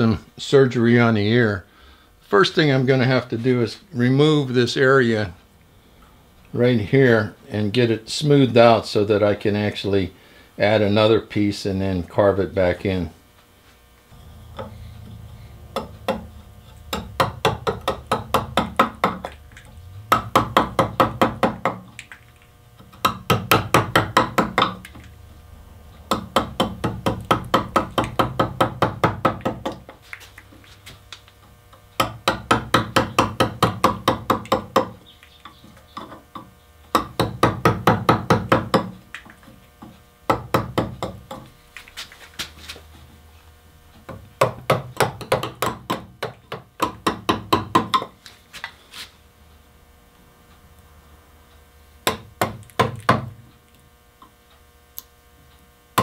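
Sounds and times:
mallet tapping carving gouge: 14.4 - 22.2, 22.8 - 25.1, 26.1 - 30.0, 32.0 - 39.6, 40.3 - 41.5, 44.1 - 48.1, 52.0 - 53.3.

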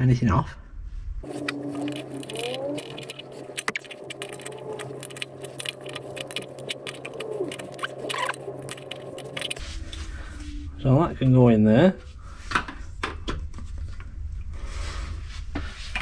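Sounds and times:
low steady hum: 0.4 - 16.0.

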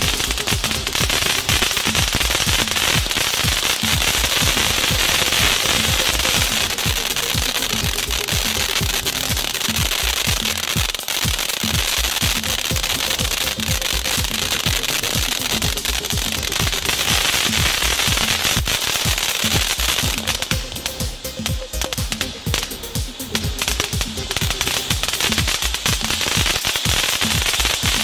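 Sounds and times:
firework hissing and crackling: 0.0 - 28.0
music with steady bass beat: 0.0 - 28.0.

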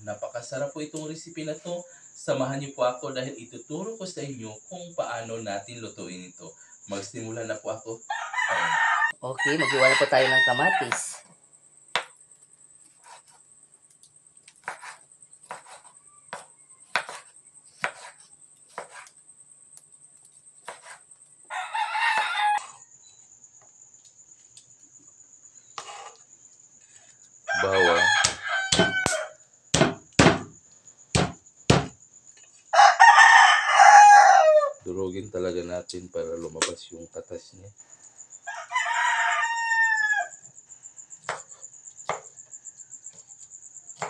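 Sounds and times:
rooster crowing: 8.0 - 11.2, 21.5 - 23.2, 27.4 - 29.4, 32.7 - 34.9, 38.4 - 40.5
knife knocking on cutting board: 28.2 - 29.0, 29.8 - 30.5, 31.2 - 32.0.

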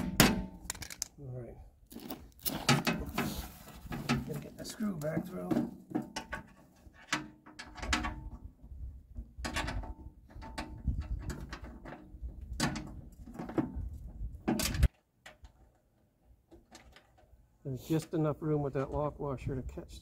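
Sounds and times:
plastic cover clacking on steel: 0.6 - 1.1.

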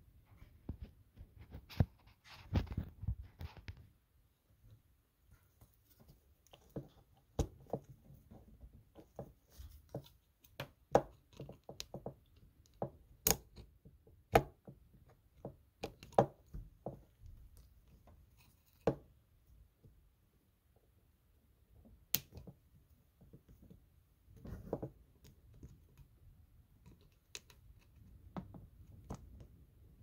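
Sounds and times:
small clicks and knocks: 5.3 - 19.1, 26.8 - 29.7.

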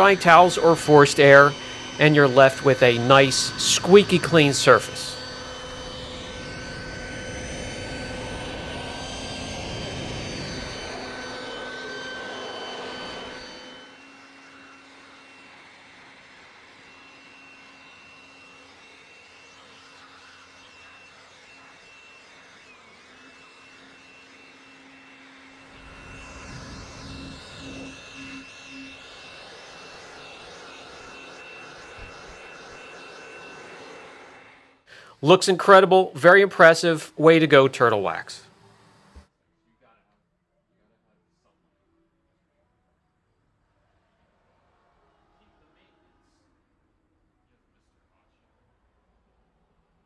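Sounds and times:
electric air blower whining: 0.0 - 39.2.

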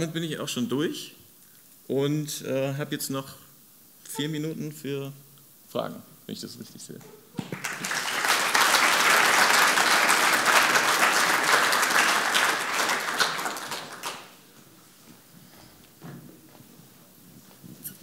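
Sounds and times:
audience applauding: 7.4 - 14.4.

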